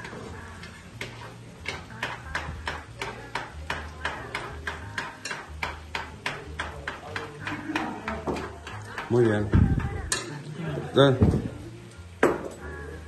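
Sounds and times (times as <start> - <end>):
utensil beating eggs in pot: 0.0 - 10.4.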